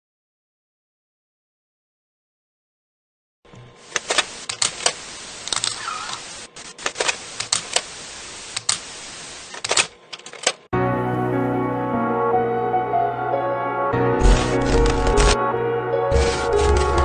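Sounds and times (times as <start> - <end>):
steady hiss: 3.8 - 10.0
camera shutter clicks: 3.9 - 7.9, 14.2 - 15.4, 16.1 - 17.0.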